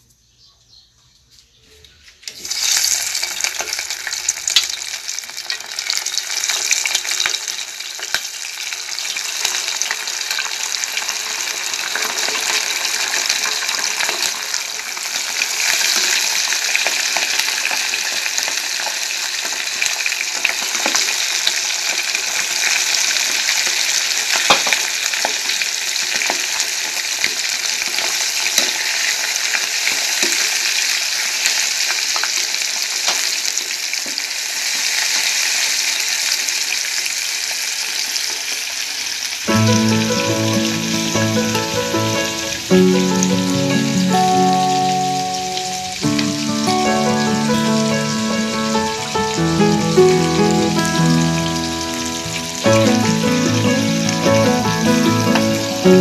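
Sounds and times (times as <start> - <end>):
oil popping and crackling: 2.2 - 39.5
chicken sizzling in hot oil: 2.3 - 56.0.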